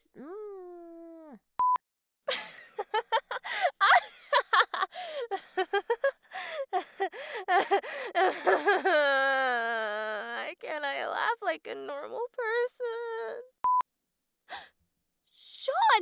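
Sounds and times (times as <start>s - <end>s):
woman laughing hard: 2.3s - 9.5s.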